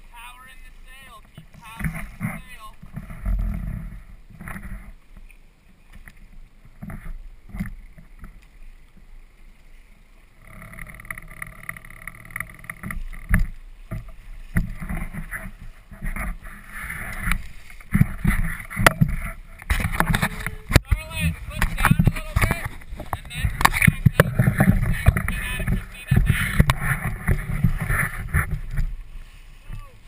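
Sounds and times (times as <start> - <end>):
motorboat motor: 0.0 - 8.4, 10.1 - 30.0
water splashing against hull: 0.0 - 30.0
hull knocking on waves: 1.0 - 4.9, 11.2 - 29.0.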